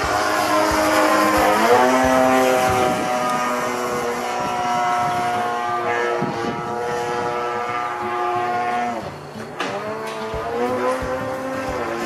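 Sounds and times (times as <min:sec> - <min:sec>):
model plane engine buzzing: 0:00.0 - 0:12.0.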